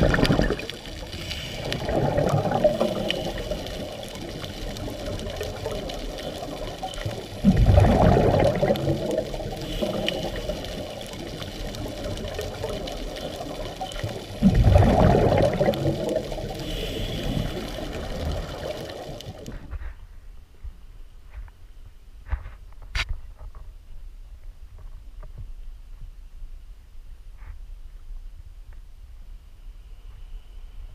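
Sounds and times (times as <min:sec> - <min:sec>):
exhaled bubbles bursting: 0:00.0 - 0:19.6
steady underwater hiss: 0:00.0 - 0:20.2, 0:29.3 - 0:30.9.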